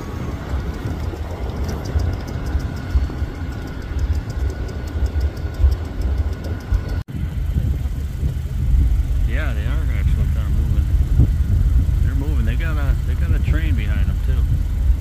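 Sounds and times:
diesel locomotives rumbling: 0:00.0 - 0:15.0
faint steady whine: 0:00.0 - 0:15.0
light regular clicking: 0:00.5 - 0:07.1.

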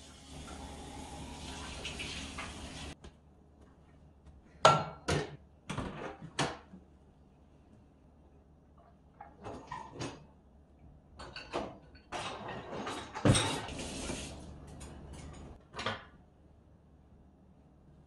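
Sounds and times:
dishwasher racks rolling: 0:00.0 - 0:03.0, 0:09.2 - 0:10.3, 0:11.2 - 0:15.9
dishes clattering: 0:11.2 - 0:13.8.

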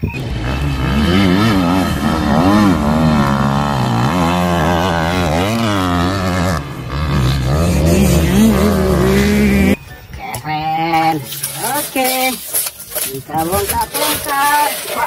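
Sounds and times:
dirt bike engine revving: 0:00.0 - 0:09.8.

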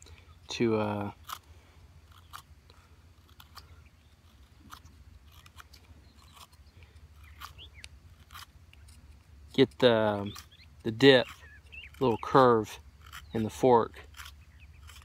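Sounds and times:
carving blade whittling wood: 0:00.0 - 0:15.0.

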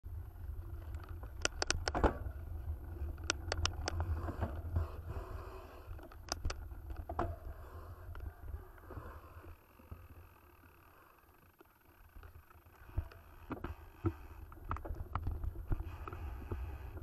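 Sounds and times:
wind and vibration rumble: 0:00.0 - 0:17.0
bike clicks and rattles: 0:00.2 - 0:17.0.

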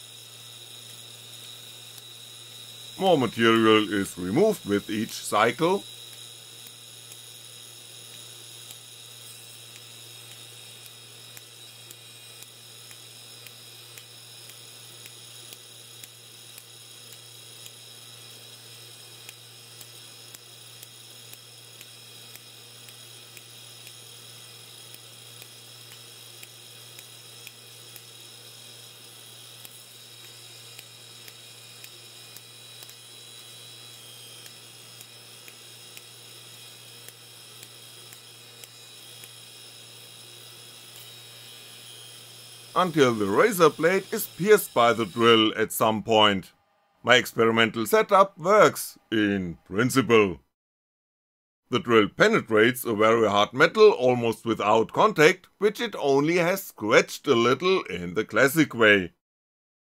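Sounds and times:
sharp spark clicks: 0:00.0 - 0:46.4
machine hum and high whine: 0:00.0 - 0:50.4.

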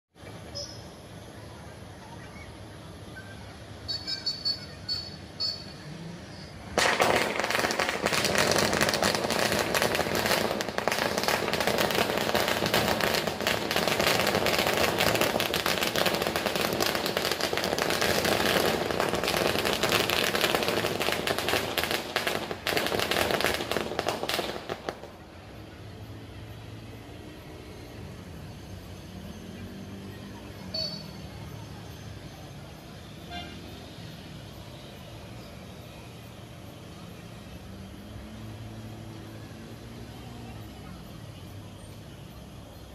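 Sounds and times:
firecrackers bangs and crackles: 0:06.6 - 0:25.6.

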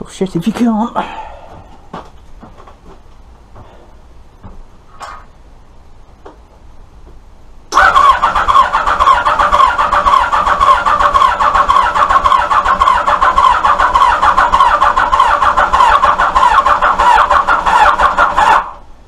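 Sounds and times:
starter cranking engine: 0:07.7 - 0:18.8.

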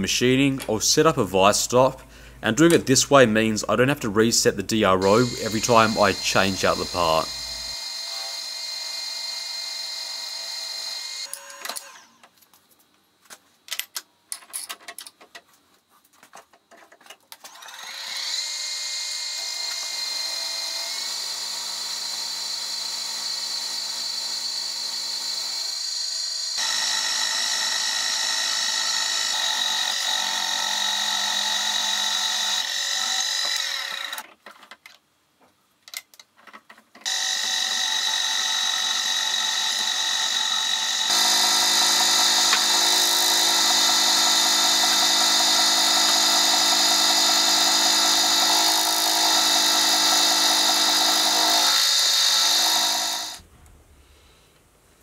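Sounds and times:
milling machine whine and cutting: 0:05.0 - 0:11.9, 0:17.6 - 0:34.2, 0:37.1 - 0:53.4.

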